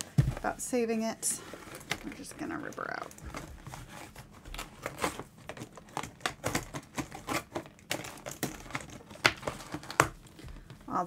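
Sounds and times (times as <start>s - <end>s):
packaging crinkling and tearing: 1.7s - 10.9s.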